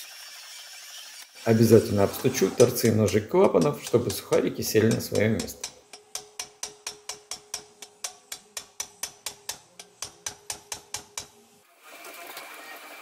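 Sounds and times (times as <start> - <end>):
metal tapping on valve stems: 2.6 - 11.4.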